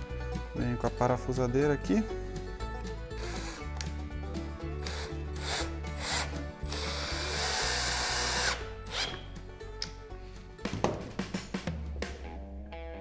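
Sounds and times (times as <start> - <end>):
cordless drill driving screw: 3.2 - 3.9, 4.8 - 9.2.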